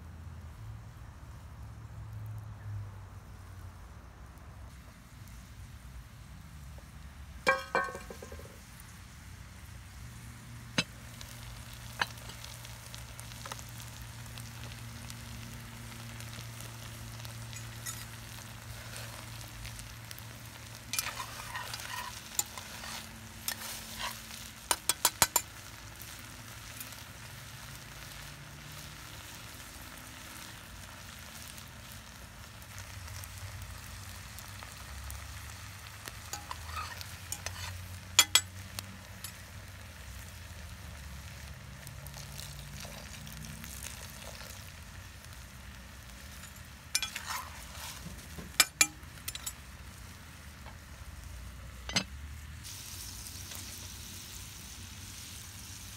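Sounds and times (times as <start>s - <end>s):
rice sizzling in a pot: 4.6s - 55.9s
metallic taps: 7.5s - 8.6s
metal spoon scraping pot: 20.9s - 25.4s, 36.3s - 38.5s, 46.3s - 49.6s.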